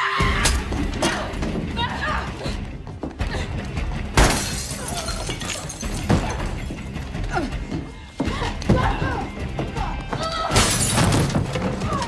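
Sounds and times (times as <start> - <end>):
women grunting and gasping: 0.8 - 4.0, 7.1 - 10.6.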